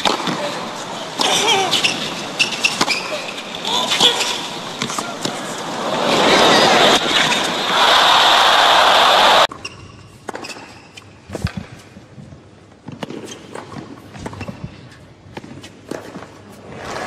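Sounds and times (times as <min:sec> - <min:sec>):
racket striking tennis ball: 0:00.0 - 0:00.4, 0:01.2 - 0:05.5, 0:09.5 - 0:11.9
tennis ball bouncing: 0:01.2 - 0:03.4.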